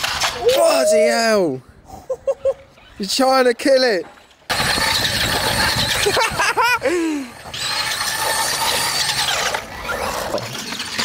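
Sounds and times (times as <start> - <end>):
person yelping: 0.4 - 1.4
tyres rattling on brick paving: 4.0 - 11.0
rc car motor whine: 4.5 - 6.4, 7.0 - 11.0.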